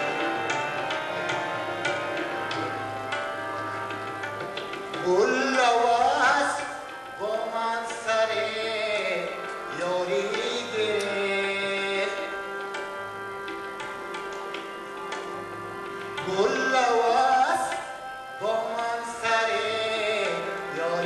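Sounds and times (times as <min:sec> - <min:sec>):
harmonium chords: 0:00.0 - 0:21.0
tabla drumming: 0:00.0 - 0:21.0
man singing ornamented melody: 0:05.0 - 0:12.5, 0:16.2 - 0:21.0.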